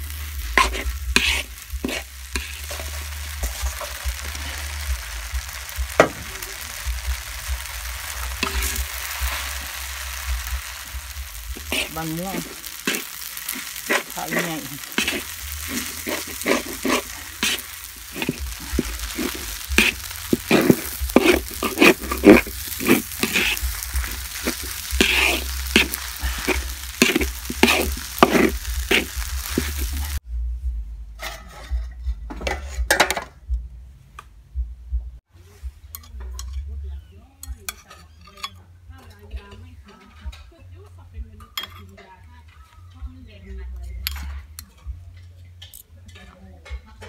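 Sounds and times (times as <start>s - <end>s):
metal spatula scraping a wok: 0.0s - 30.2s, 31.2s - 33.1s, 35.8s - 40.5s
noodles sizzling in a wok: 0.0s - 30.2s
cutlery clinking on plates: 41.4s - 42.2s.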